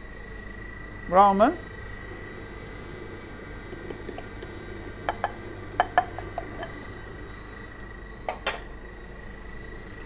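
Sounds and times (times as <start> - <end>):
stand mixer whine: 0.0 - 10.0
glass bowl clinking on steel bowl: 8.3 - 8.7.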